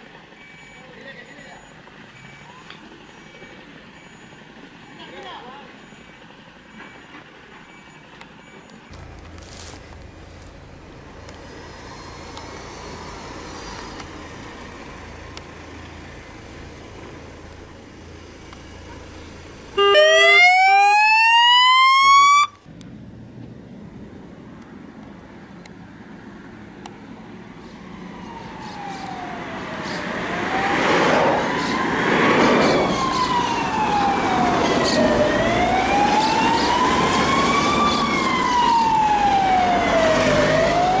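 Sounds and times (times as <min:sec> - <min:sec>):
road traffic: 0:00.0 - 0:41.0
fire truck siren wailing: 0:19.7 - 0:22.7, 0:27.7 - 0:41.0
police siren whoop: 0:19.8 - 0:22.6, 0:27.8 - 0:41.0.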